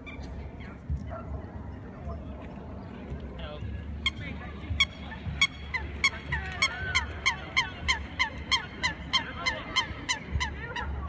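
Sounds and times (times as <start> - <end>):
geese honking: 4.0 - 11.0.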